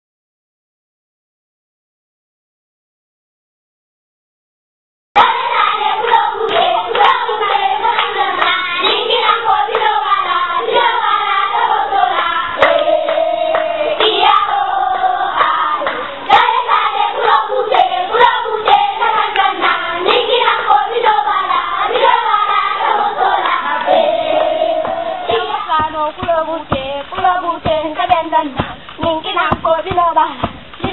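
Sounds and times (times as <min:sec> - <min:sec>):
children singing in chorus: 0:05.2 - 0:26.2
hand clapping: 0:06.0 - 0:10.0, 0:12.1 - 0:16.5, 0:17.2 - 0:20.4, 0:23.4 - 0:30.9.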